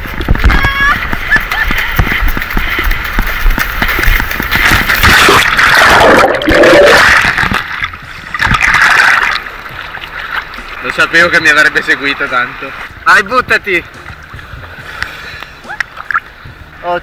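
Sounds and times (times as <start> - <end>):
water splashing: 0.0 - 13.1
underwater bubbling and gurgling: 2.6 - 10.9.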